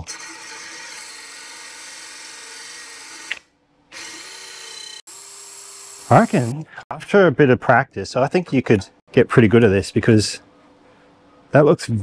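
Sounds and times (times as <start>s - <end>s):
drill grinding metal blade: 0.0s - 6.6s.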